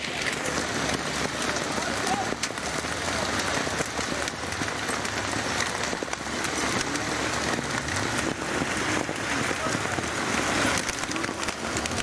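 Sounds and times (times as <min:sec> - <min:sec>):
hail and rain pelting down: 0:00.0 - 0:12.0
hailstones ticking: 0:00.0 - 0:12.0.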